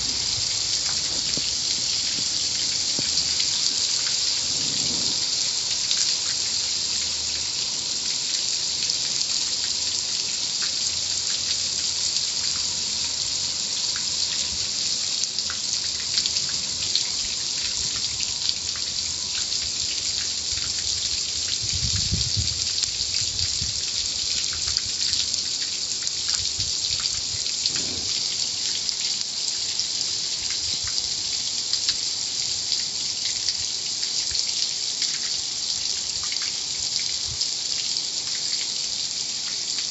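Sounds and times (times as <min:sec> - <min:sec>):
car wash water spray hissing: 0:00.0 - 0:09.5, 0:27.3 - 0:28.6.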